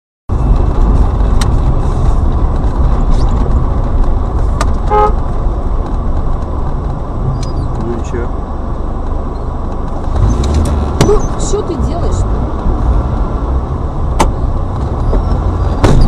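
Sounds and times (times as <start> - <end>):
car engine rumble from cabin: 0.3 - 16.0
road noise: 0.3 - 16.0
car horn toot: 4.8 - 5.2.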